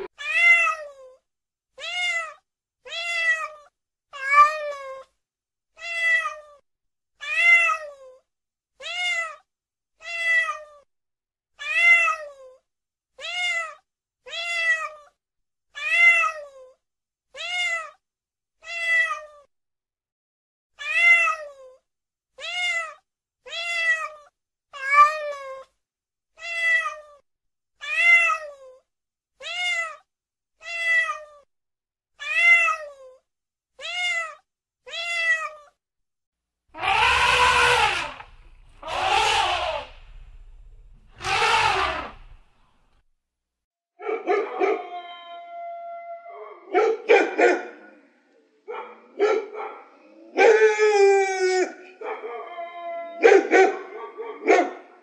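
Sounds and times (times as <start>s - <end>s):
cat meowing: 0.0s - 1.2s, 1.8s - 5.1s, 5.8s - 6.6s, 7.2s - 8.2s, 8.8s - 9.4s, 10.0s - 10.9s, 11.6s - 12.6s, 13.2s - 15.1s, 15.8s - 16.7s, 17.3s - 18.0s, 18.6s - 19.5s, 20.8s - 21.8s, 22.4s - 25.7s, 26.4s - 27.2s, 27.8s - 28.8s, 29.4s - 30.0s, 30.6s - 31.5s, 32.2s - 33.2s, 33.8s - 35.8s, 36.8s - 42.4s.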